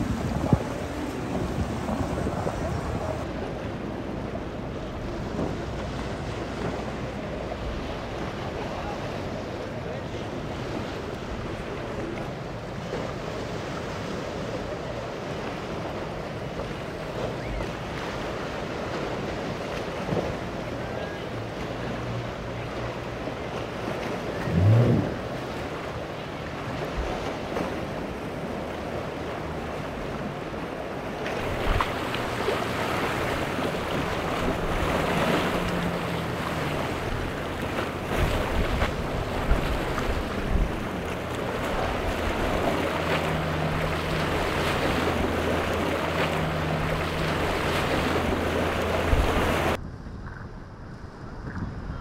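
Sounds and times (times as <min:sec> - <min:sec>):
wind gusting on microphone: 0:00.0 - 0:03.4, 0:31.4 - 0:52.0
choppy surf rushing: 0:00.0 - 0:49.8
outboard motors droning: 0:00.0 - 0:49.9.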